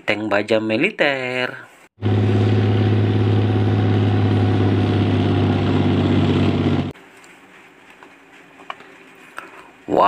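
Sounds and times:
tank engine running: 0:02.0 - 0:07.0.

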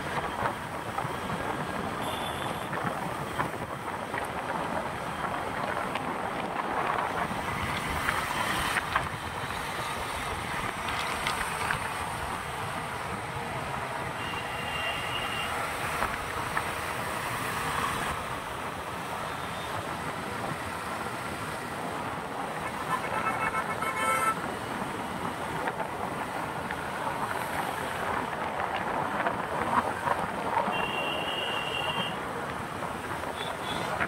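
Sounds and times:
road traffic noise: 0:00.0 - 0:34.0.

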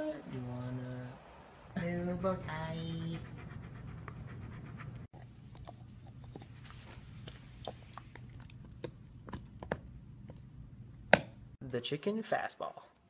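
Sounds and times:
dog panting rapidly: 0:02.6 - 0:05.1
dog gnawing chew stick: 0:05.2 - 0:10.5.

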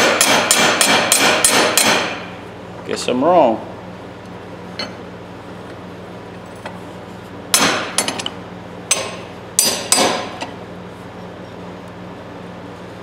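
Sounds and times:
hammer striking metal pliers: 0:00.0 - 0:02.2, 0:07.5 - 0:08.3, 0:08.9 - 0:10.5.

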